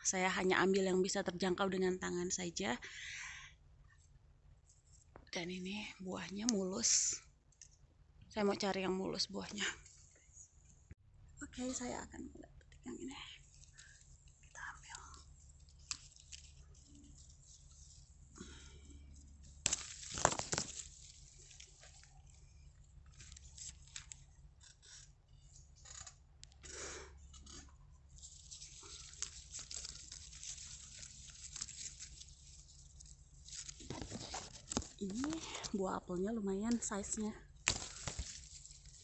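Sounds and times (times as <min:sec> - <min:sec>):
leaves rustling and twigs snapping: 0:13.4 - 0:25.1, 0:27.3 - 0:39.0
apples knocking into wicker basket: 0:19.6 - 0:20.9, 0:37.6 - 0:38.4.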